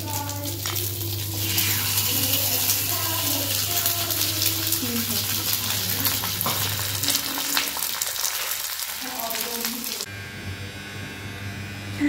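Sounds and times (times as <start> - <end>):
steady hum: 0.0 - 7.8
food sizzling in hot oil: 0.0 - 10.1.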